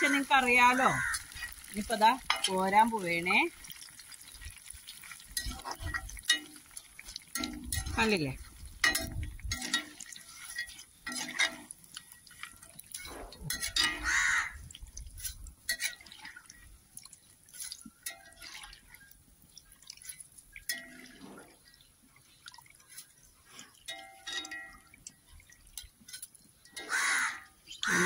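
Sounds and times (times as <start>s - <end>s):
oil dripping into pan: 0.0s - 28.0s
ladle clinking and scraping pan: 0.2s - 3.0s, 5.2s - 14.1s, 15.2s - 16.2s.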